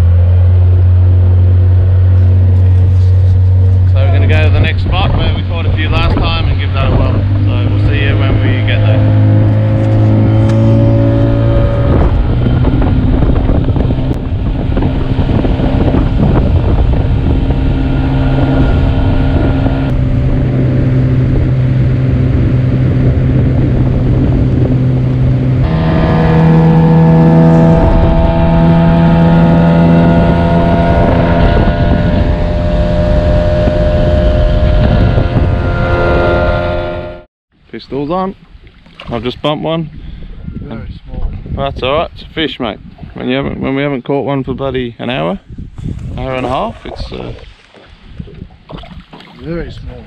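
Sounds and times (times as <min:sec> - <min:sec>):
outboard motor running: 0:00.0 - 0:37.3.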